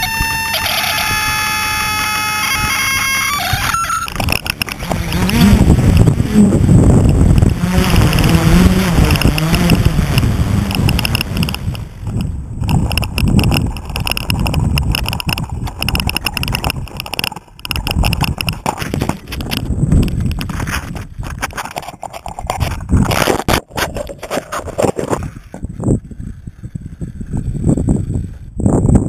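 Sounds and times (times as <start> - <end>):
wavering hum: 0.0 - 28.8
wind buffeting microphone: 0.0 - 29.0
knocks and rubbing on drone: 3.6 - 25.7.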